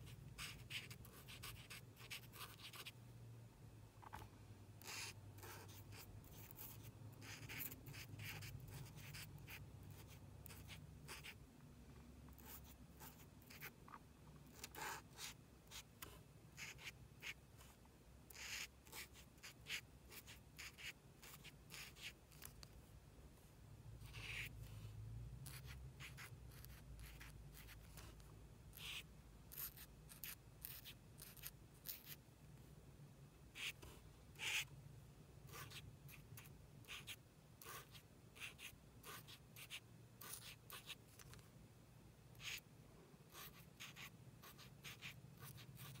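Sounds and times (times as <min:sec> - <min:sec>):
marker scratching on card: 0:00.0 - 0:03.0, 0:04.8 - 0:11.4, 0:12.3 - 0:13.8, 0:14.5 - 0:22.7, 0:24.0 - 0:24.8, 0:25.4 - 0:32.2, 0:33.5 - 0:34.7, 0:35.5 - 0:41.4, 0:42.3 - 0:42.6, 0:43.3 - 0:46.0
faint low hum: 0:00.0 - 0:46.0.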